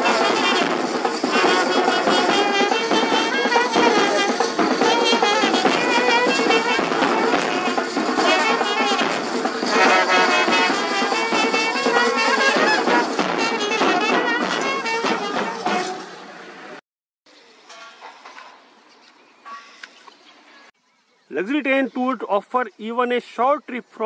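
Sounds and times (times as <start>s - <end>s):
bass drum beat: 0.0s - 15.8s
brass band playing: 0.0s - 16.3s.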